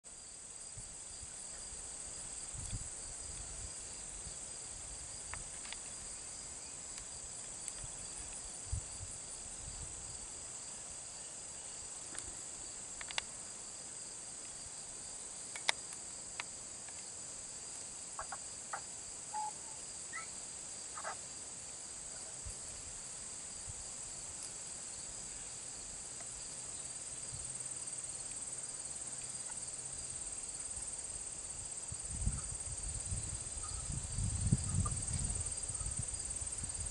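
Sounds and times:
insects chorus droning: 0.1 - 36.9
faint clicks and chirps: 13.0 - 13.3, 15.5 - 17.0.

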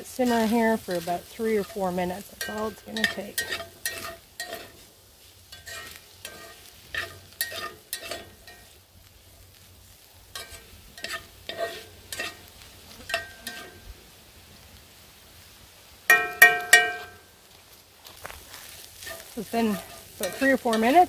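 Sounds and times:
low frying sizzle: 0.0 - 21.0
metal fork scraping skillet: 0.1 - 8.8, 10.3 - 13.9, 18.6 - 21.0.

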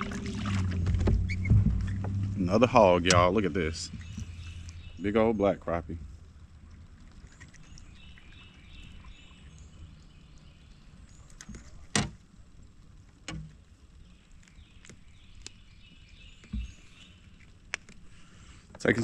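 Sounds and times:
soft thumps: 0.6 - 2.4
sharp knock in kayak: 0.8 - 2.3.

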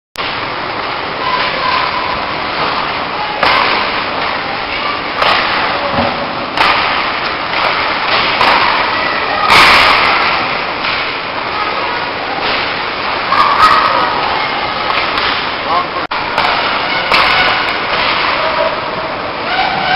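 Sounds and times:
ice rink noise: 0.2 - 19.9
hockey sticks and puck knocking: 5.2 - 8.9, 14.9 - 15.5, 16.3 - 18.4.

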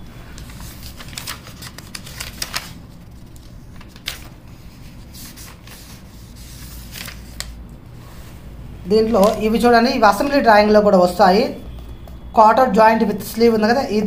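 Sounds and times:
book pages turning: 0.1 - 10.5.

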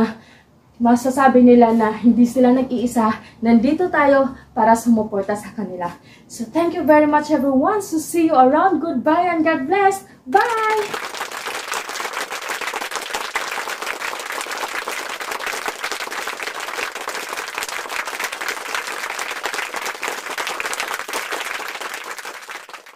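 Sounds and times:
crowd applause: 10.4 - 22.9.

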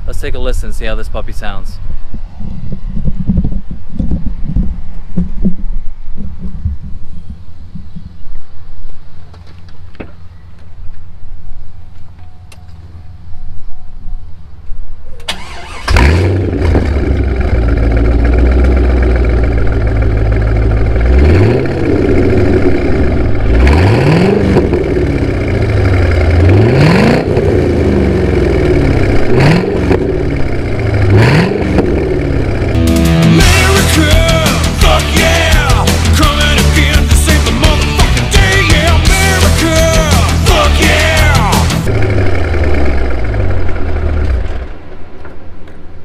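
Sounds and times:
car engine starting: 15.2 - 45.7
car engine revving: 15.3 - 45.0
car engine idling: 15.3 - 45.3.

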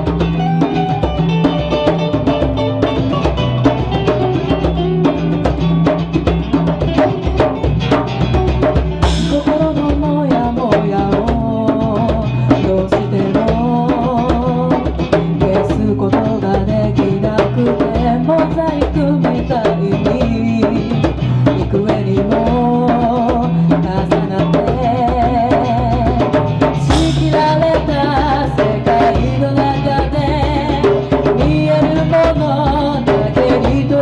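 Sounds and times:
sharp drum strikes: 0.0 - 16.2, 26.0 - 33.9
acoustic guitar: 0.0 - 34.0
hand percussion: 0.0 - 34.0
woman singing: 9.0 - 34.0.

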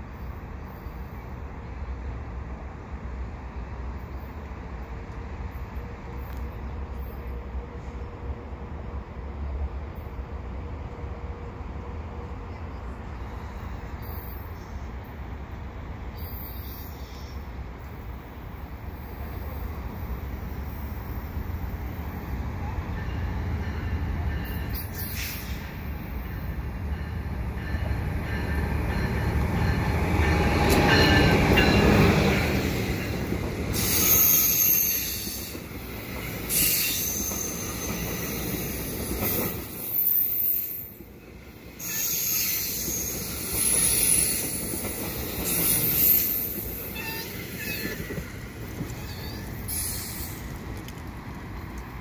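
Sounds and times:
passing train rumble: 0.0 - 52.0
rush of train coaches: 0.0 - 52.0
high-pitched wheel squeal: 36.5 - 38.9, 41.8 - 44.6, 45.4 - 48.2, 48.9 - 50.4.

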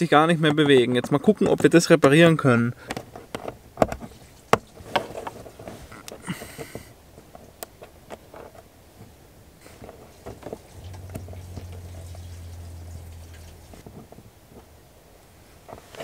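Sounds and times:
low steady hum: 9.2 - 15.9.

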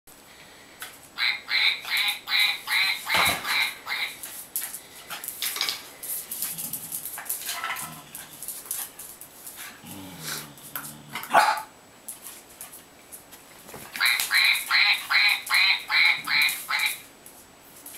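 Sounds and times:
toy duck quacking: 1.2 - 4.2, 14.0 - 17.0
dog growling low: 7.7 - 8.4, 9.8 - 11.3
dog barking loudly: 11.2 - 11.7.

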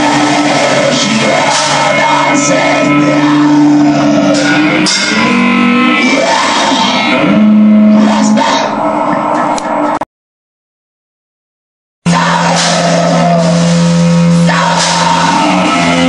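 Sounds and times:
harsh shouted vocals: 0.0 - 9.8, 12.1 - 16.0
distorted guitars: 0.0 - 10.0, 12.0 - 16.0.

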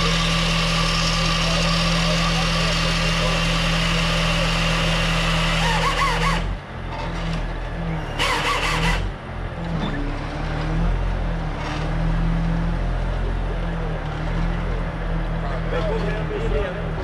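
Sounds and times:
hydraulic saw cutting tree trunk: 0.0 - 7.5, 8.1 - 9.2
truck engine droning: 0.0 - 17.0.

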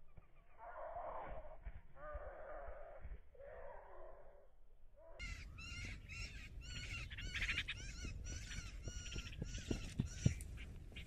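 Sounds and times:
birds chattering: 5.2 - 11.0.

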